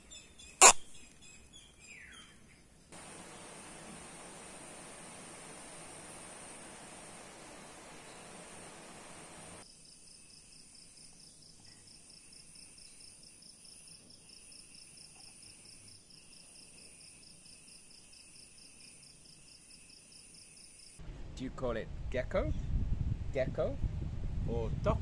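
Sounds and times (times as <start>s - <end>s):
cricket chirping: 0.0s - 21.0s
faint hiss: 2.9s - 9.9s.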